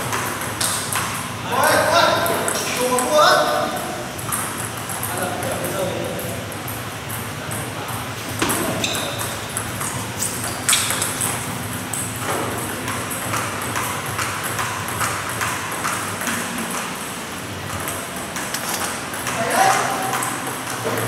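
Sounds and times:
table tennis ball clicking: 8.4s - 17.0s.

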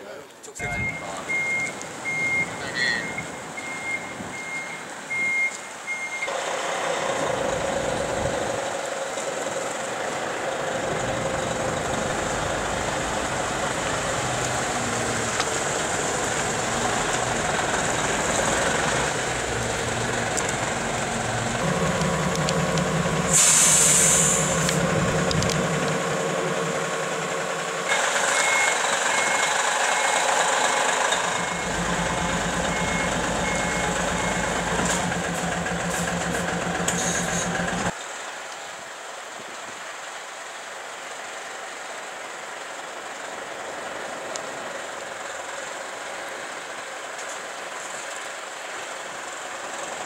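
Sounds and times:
lorry diesel engines running: 0.5s - 38.0s, 39.2s - 50.0s
reversing alarm beeping: 0.6s - 6.4s, 28.3s - 30.2s, 31.2s - 37.9s
air-brake hiss: 23.2s - 24.9s, 34.8s - 37.8s.

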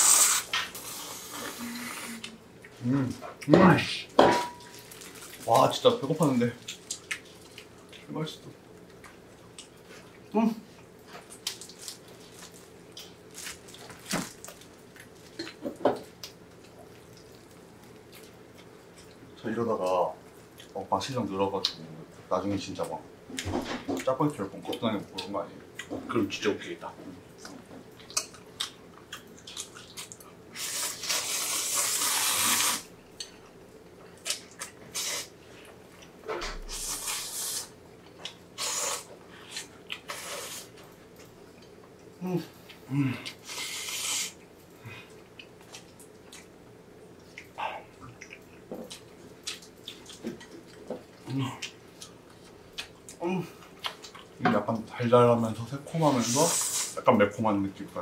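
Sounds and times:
chewing and lip smacks: 6.6s - 8.1s, 27.3s - 31.6s, 45.2s - 54.4s.

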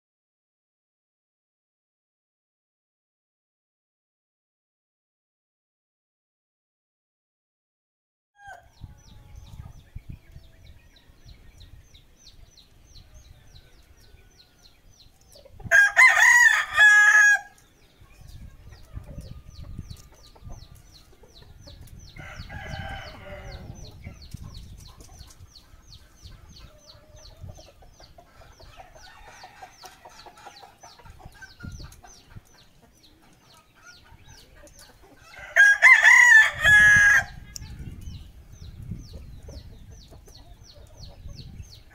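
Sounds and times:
rooster crowing: 15.7s - 17.5s, 22.2s - 23.7s, 35.2s - 37.4s.

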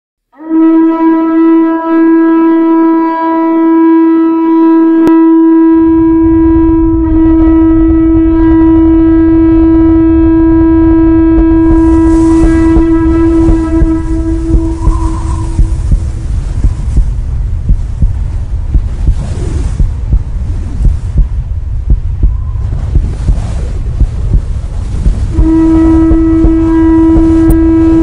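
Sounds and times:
conch-shell trumpet note: 0.3s - 16.5s, 25.2s - 28.0s
low rumble: 2.6s - 28.0s.

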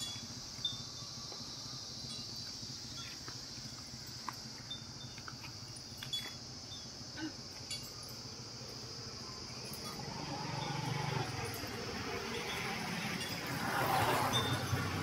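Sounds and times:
faint clicks and tinkles: 0.0s - 6.9s, 7.5s - 8.9s
insects buzzing: 0.0s - 15.0s.

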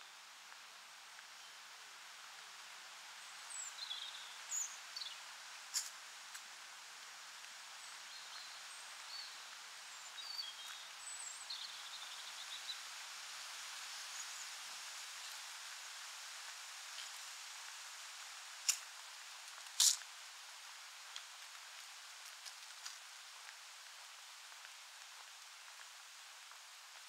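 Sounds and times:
rustling leaves: 0.0s - 27.0s
wind hiss: 0.0s - 27.0s.

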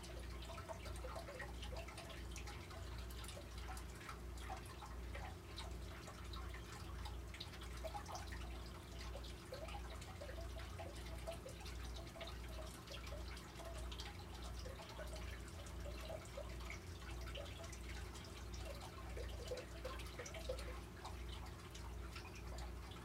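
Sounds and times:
faint dripping water: 0.0s - 23.0s.

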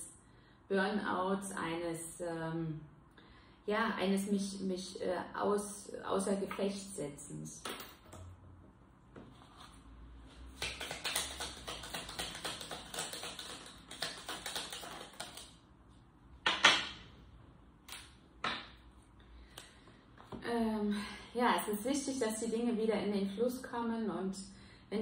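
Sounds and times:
cards being shuffled: 10.5s - 15.6s.

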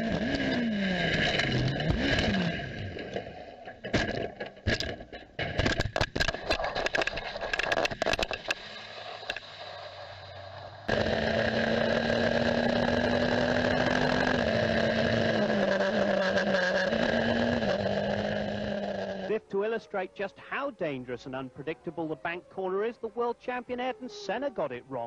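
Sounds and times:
racing car engine at speed: 0.0s - 4.9s, 10.5s - 19.3s.

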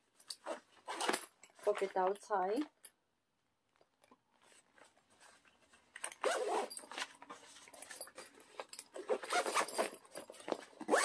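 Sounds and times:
backpack zipper zipping: 0.4s - 1.2s, 6.2s - 6.8s, 9.0s - 9.9s.

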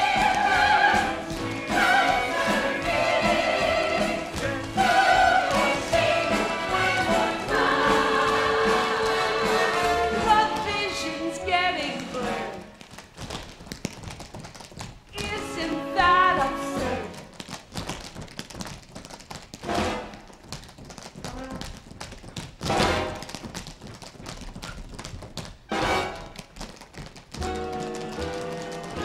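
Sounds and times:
pit orchestra music: 0.0s - 12.7s
tap dancers tapping on stage floor: 0.0s - 29.0s.

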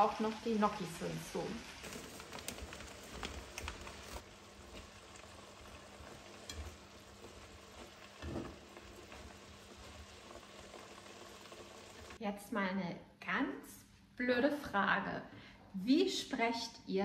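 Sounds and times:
vegetables sizzling in a frying pan: 0.0s - 12.2s
spatula stirring: 1.8s - 12.2s.

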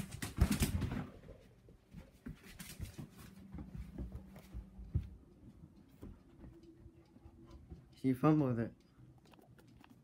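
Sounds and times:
low steady hum: 0.7s - 10.0s
scuffling on wood floor: 1.8s - 6.6s.

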